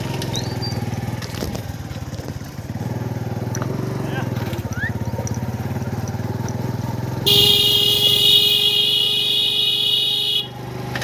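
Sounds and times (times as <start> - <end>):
engine running with fast pulse: 0.0 - 11.0
loud buzzing horn: 7.2 - 10.7.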